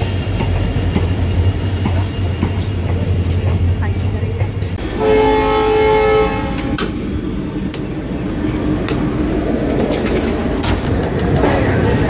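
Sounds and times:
train rumble: 0.0 - 12.0
locomotive horn chord: 4.9 - 6.9.

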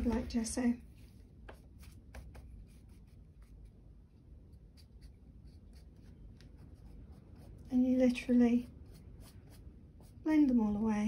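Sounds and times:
paintbrush tapping: 1.4 - 2.7.

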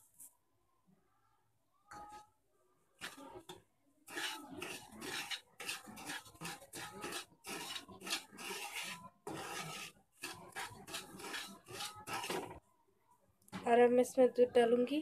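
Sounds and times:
wooden spoon scraping a pan: 3.0 - 12.6.

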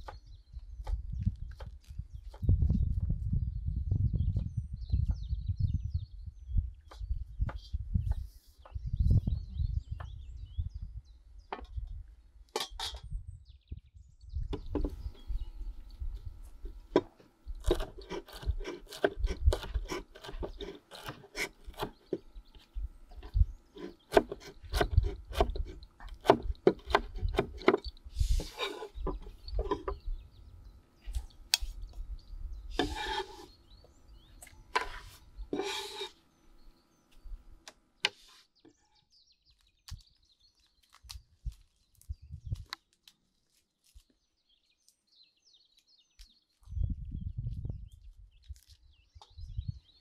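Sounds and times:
knife chopping on wooden board: 17.0 - 22.0, 23.8 - 27.8
knife blade scraping board: 17.6 - 22.0, 23.8 - 30.0, 32.7 - 33.6, 34.7 - 36.2.

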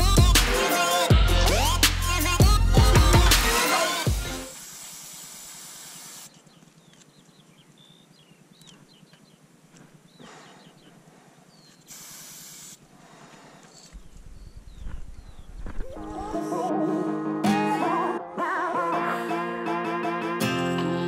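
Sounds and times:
music: 0.0 - 4.6, 16.0 - 21.0
spray paint can hissing: 3.4 - 6.4, 11.8 - 12.8.

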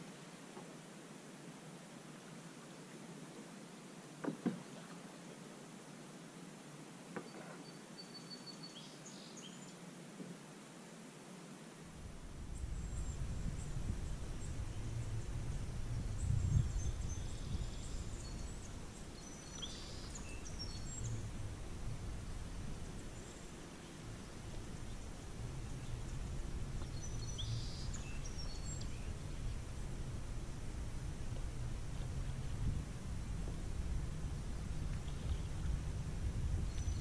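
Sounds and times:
steady low rumbling: 12.0 - 37.0
small birds chirping: 12.5 - 21.3, 22.2 - 29.7.

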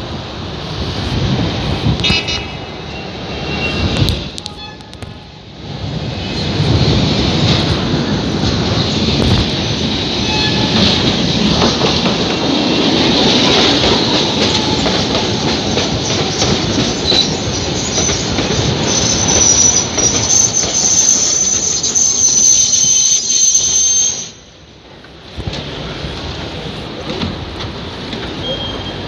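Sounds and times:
tram wheels rumbling over rails: 0.0 - 29.0
high steady squeal: 17.1 - 24.5.

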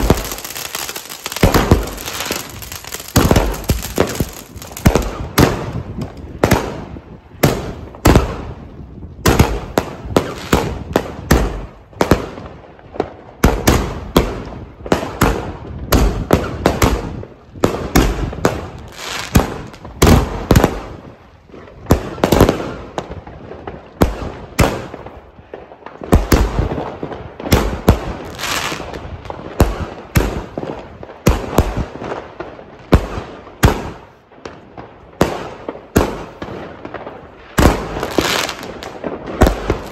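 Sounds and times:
crackling hiss: 0.0 - 5.3
firework bangs: 0.0 - 39.9.

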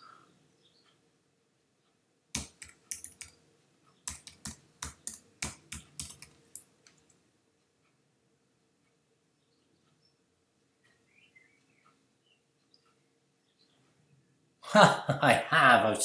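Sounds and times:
keyboard typing: 2.3 - 3.4, 4.0 - 7.2.

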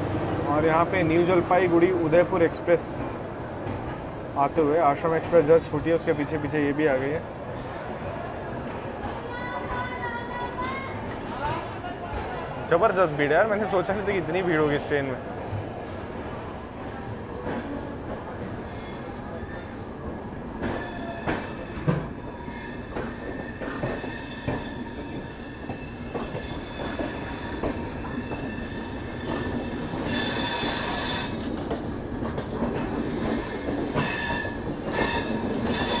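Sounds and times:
train wheels squealing on rails: 18.3 - 36.0.

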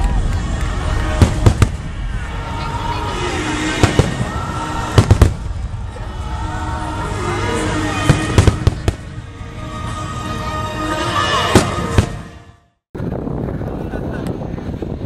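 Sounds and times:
fireworks exploding: 0.0 - 6.8, 7.8 - 9.2
background music: 0.0 - 12.8
voices: 2.0 - 9.1.

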